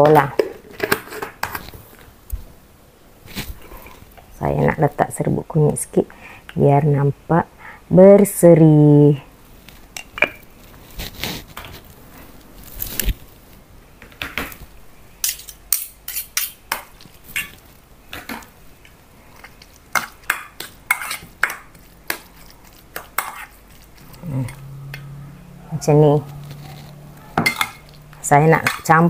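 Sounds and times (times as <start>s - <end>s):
metal spoon scraping steel bowl: 20.9s - 21.3s, 26.2s - 29.0s.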